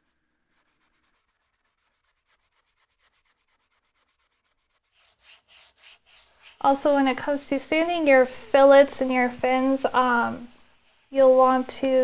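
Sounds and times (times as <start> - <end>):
sandpaper rubbing on plastic: 0.0 - 6.9, 10.1 - 11.5.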